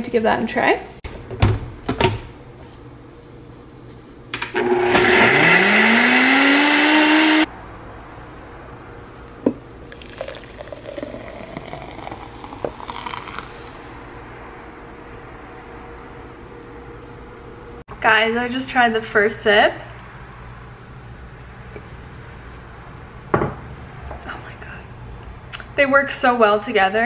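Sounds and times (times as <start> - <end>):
blender motor whine: 4.5 - 7.5.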